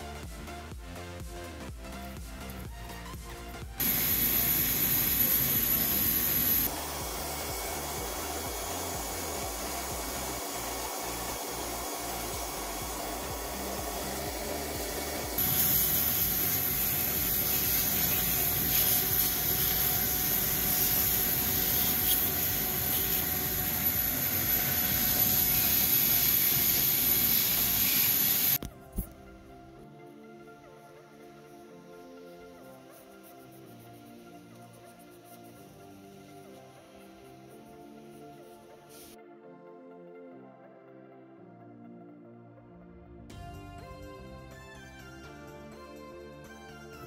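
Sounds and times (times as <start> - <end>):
vacuum cleaner whining: 3.8 - 28.6.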